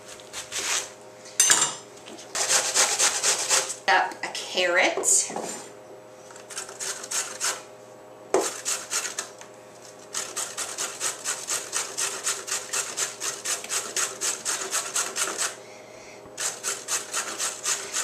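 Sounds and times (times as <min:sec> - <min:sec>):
carrot grating on metal grater: 0:02.4 - 0:03.8, 0:06.5 - 0:07.6, 0:08.4 - 0:09.3, 0:10.1 - 0:15.6, 0:16.4 - 0:18.0.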